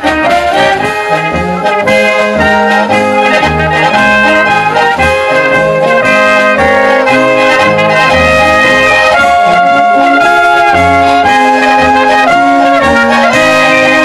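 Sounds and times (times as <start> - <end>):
accordion: 0.0 - 14.0
brass band playing: 0.0 - 14.0
trumpets playing melody: 0.0 - 14.0
tuba bass line: 0.0 - 14.0.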